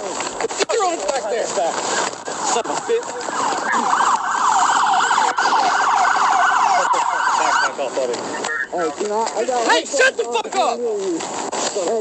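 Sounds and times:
police siren yelping: 0:02.2 - 0:08.8.

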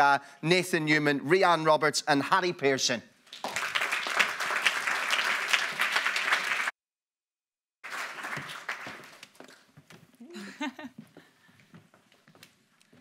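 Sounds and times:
audience applauding: 0:03.3 - 0:06.7, 0:07.8 - 0:09.6.

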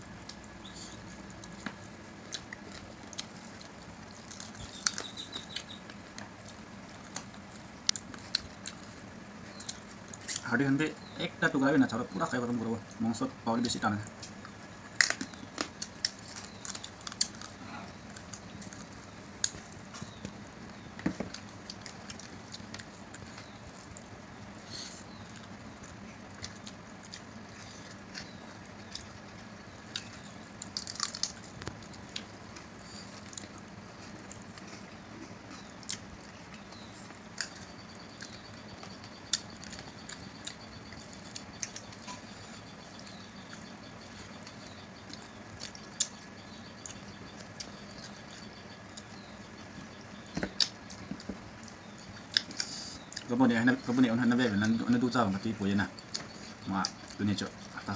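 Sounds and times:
chewing and sucking bones: 0:00.2 - 0:11.1, 0:14.1 - 0:53.3.

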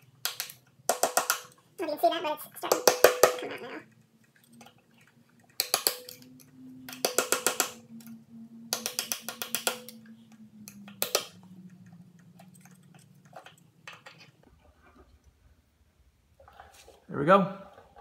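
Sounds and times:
steel pick clicking and scraping: 0:03.9 - 0:14.4.

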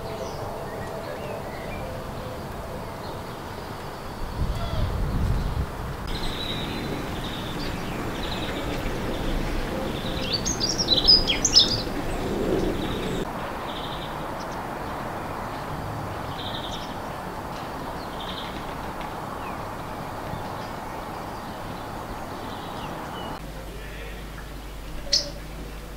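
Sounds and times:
high bird call notes: 0:06.1 - 0:14.2
songbird warbling: 0:06.1 - 0:14.6, 0:24.4 - 0:25.8.

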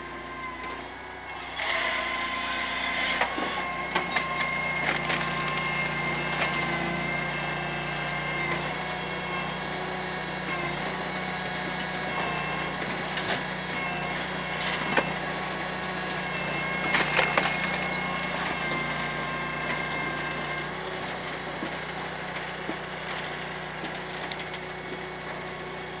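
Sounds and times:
firewood processor running: 0:00.0 - 0:26.0
wood cracking and clattering: 0:16.8 - 0:25.5.

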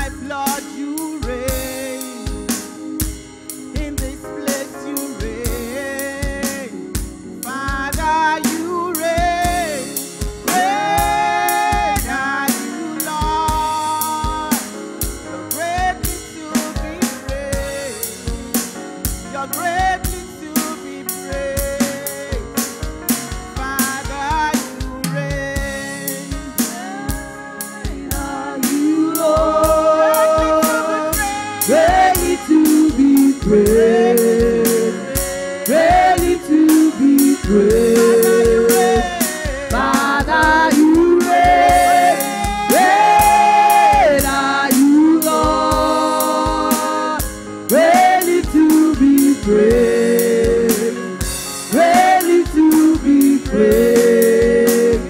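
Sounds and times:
drum kit beat: 0:00.0 - 0:55.0
backing singers: 0:09.2 - 0:13.3, 0:26.5 - 0:51.1, 0:51.7 - 0:55.0
woman lead singing: 0:10.5 - 0:12.8, 0:26.5 - 0:51.0.

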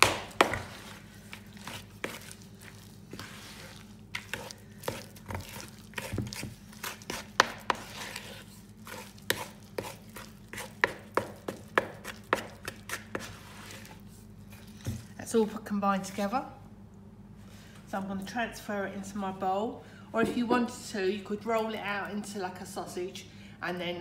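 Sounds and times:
wooden spoon stirring dough in bowl: 0:00.0 - 0:15.2.

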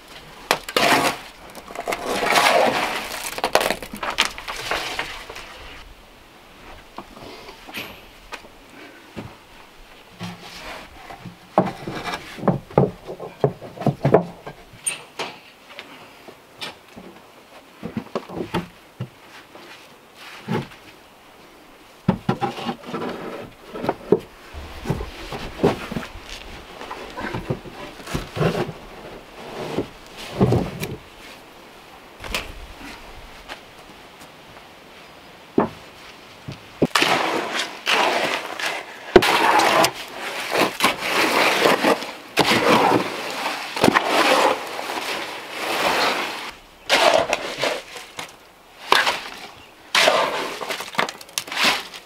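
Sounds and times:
stones knocking on stones and boards: 0:00.5 - 0:05.5, 0:50.0 - 0:52.0.

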